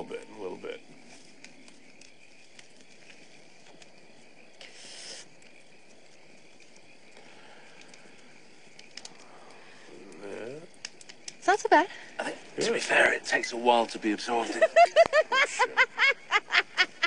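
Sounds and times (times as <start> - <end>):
campfire crackling: 0.0 - 17.0
crickets chirping: 0.0 - 17.0
breathy inhale hiss: 4.6 - 5.4, 7.1 - 10.2.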